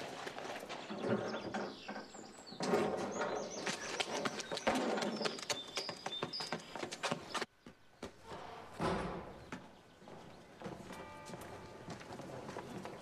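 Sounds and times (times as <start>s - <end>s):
birds chirping: 0.0s - 13.0s
horse hooves clopping: 0.0s - 13.0s
quick footsteps: 3.2s - 8.6s.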